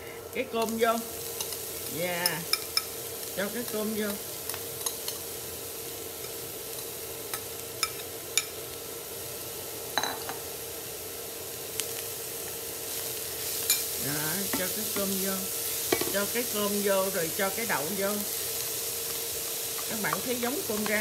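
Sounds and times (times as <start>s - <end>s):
cauliflower sizzling in frying pan: 0.0s - 21.0s.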